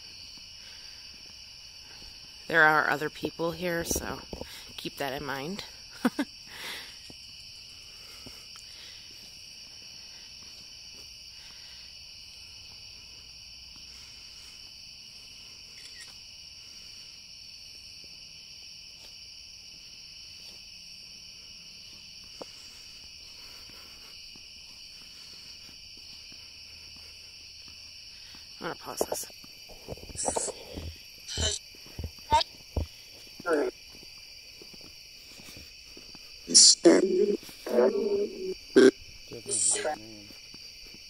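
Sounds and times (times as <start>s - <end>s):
crickets chirping: 0.0s - 41.0s.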